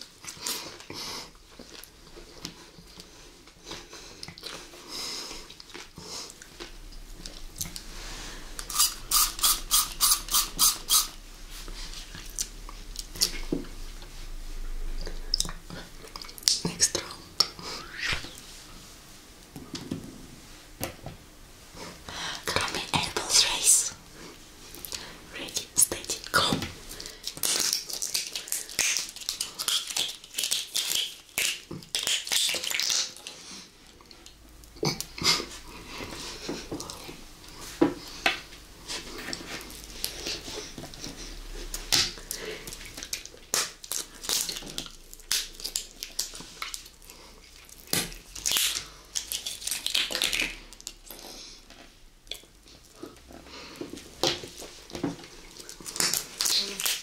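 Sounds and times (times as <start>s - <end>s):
gummy being chewed: 5.4s - 14.1s, 15.0s - 18.4s, 25.9s - 36.2s, 38.9s - 53.2s, 54.2s - 57.0s.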